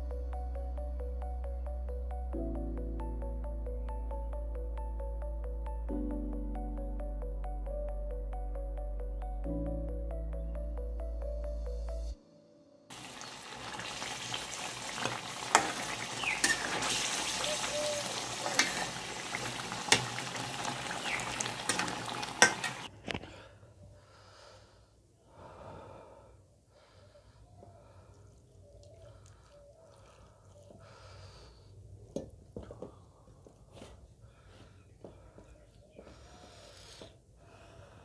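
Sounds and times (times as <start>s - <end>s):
gravy sizzling in a wok: 12.9s - 22.9s
metal spatula scraping a pan: 15.4s - 17.4s, 18.2s - 19.3s, 21.6s - 22.9s.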